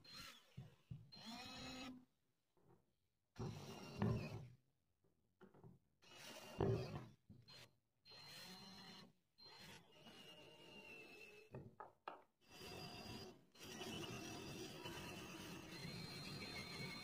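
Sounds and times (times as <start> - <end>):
drill bit rasping into wood: 0.0 - 2.0, 3.4 - 4.5, 6.0 - 11.6, 12.4 - 17.0
faint drill motor whine: 0.0 - 2.2, 3.4 - 4.5, 6.0 - 11.6, 12.4 - 17.0.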